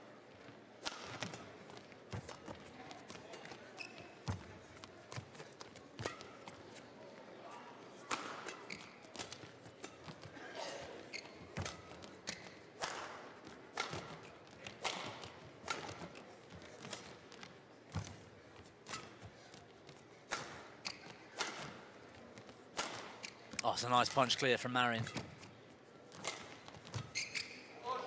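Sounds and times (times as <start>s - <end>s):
racket hitting shuttlecock: 0.8s - 3.6s, 6.0s - 6.5s, 8.1s - 10.3s, 11.1s - 16.2s, 20.2s - 21.9s, 22.7s - 23.4s, 26.1s - 27.4s.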